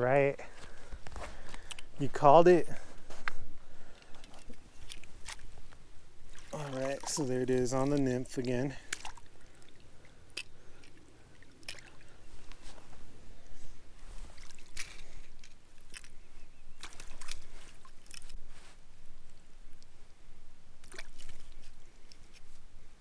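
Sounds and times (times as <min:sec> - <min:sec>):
fish splashing in a landing net: 0:20.8 - 0:21.6.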